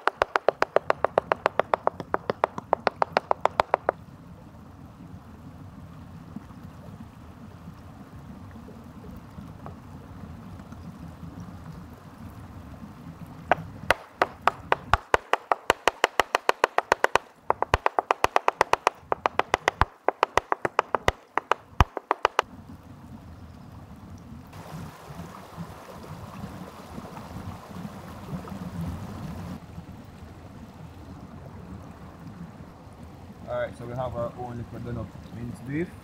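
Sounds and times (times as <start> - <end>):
rushing stream: 0.0 - 36.0
knife chopping on wooden board: 0.1 - 4.0, 13.5 - 22.4.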